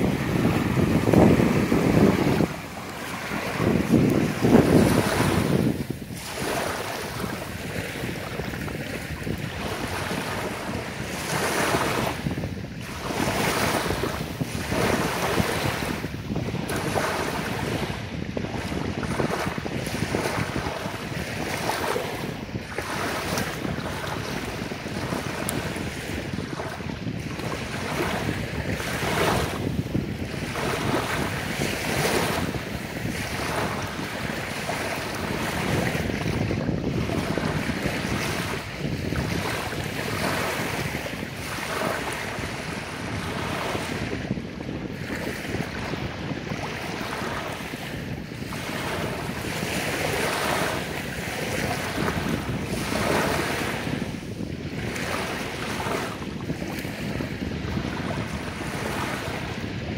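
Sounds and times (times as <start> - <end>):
waves lapping on sandy beach: 0.0 - 59.9.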